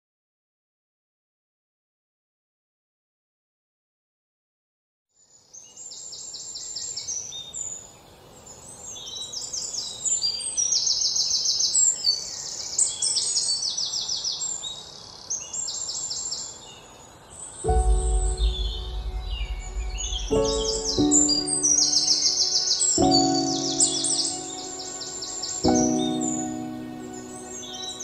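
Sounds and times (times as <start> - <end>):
faint background hiss: 5.2 - 28.0
songbirds singing trills: 5.2 - 28.0.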